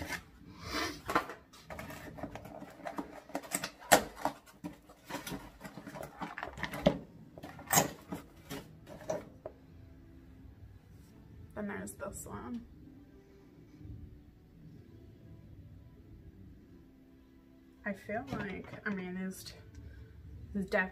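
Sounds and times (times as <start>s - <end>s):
cardboard box rustling and scraping: 0.0s - 0.3s, 1.1s - 3.5s.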